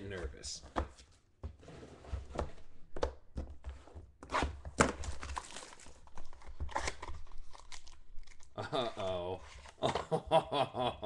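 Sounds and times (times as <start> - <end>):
plastic wrapping crinkling: 4.9 - 8.6.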